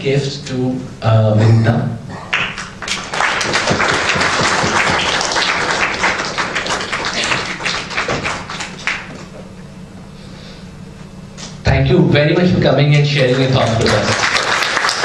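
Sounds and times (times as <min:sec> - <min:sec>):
audience applauding: 0:02.3 - 0:09.3, 0:13.2 - 0:15.0.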